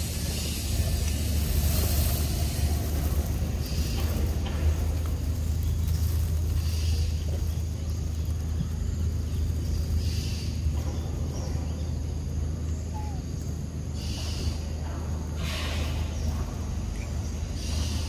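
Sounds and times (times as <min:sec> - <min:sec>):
steady low rumble: 0:00.0 - 0:18.0
brief hissing rustle: 0:15.4 - 0:16.1.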